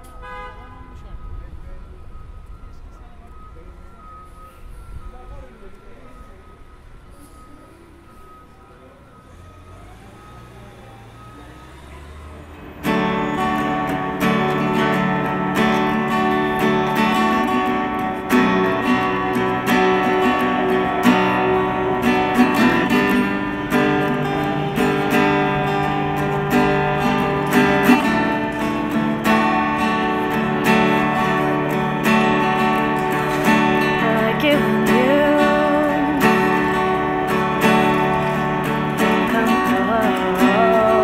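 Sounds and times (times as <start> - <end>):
acoustic guitar strumming: 12.6 - 41.0.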